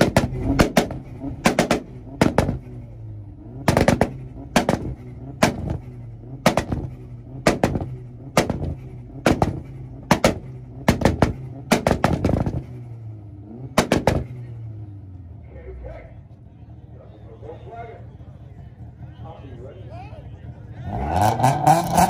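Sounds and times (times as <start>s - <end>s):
car engine on rev limiter: 0.0s - 15.4s, 20.5s - 22.0s
exhaust bangs: 0.0s - 22.0s.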